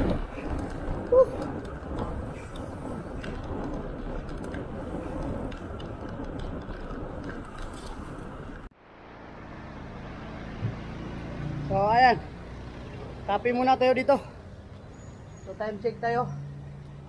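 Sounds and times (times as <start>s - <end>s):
wind buffeting microphone: 0.0s - 8.7s
road noise: 0.0s - 17.0s.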